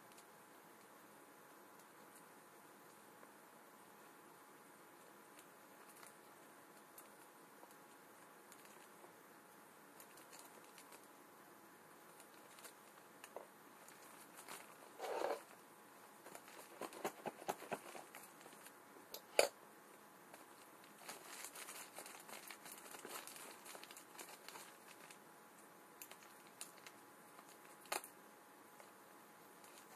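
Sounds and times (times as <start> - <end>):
plastic wrapping crinkling: 5.4 - 9.1, 10.0 - 11.1, 12.1 - 15.6, 16.2 - 18.8, 20.3 - 28.2, 29.6 - 29.9.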